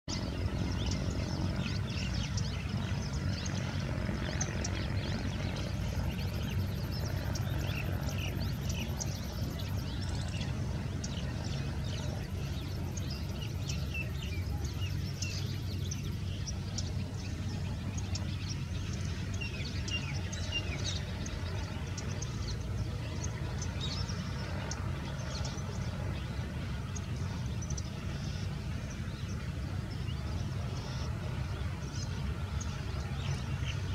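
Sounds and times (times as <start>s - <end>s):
birds chirping: 0.0s - 33.9s
low engine hum: 0.0s - 33.9s.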